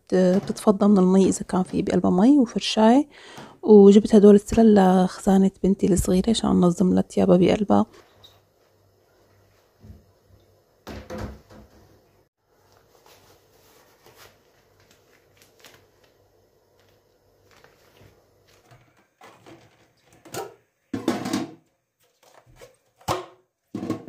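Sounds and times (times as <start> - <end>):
rubber gloves rustling: 12.5 - 20.0
plastic basket clattering on stone: 19.2 - 21.6.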